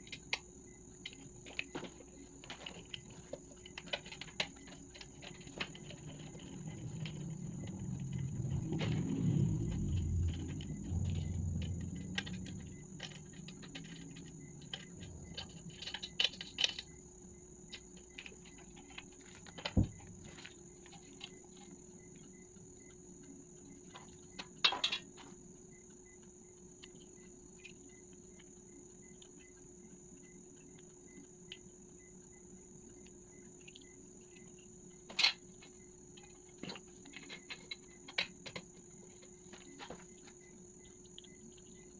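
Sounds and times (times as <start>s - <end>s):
crickets chirping: 0.0s - 41.9s
handling rumbling and rustling: 1.0s - 17.1s, 17.7s - 22.5s.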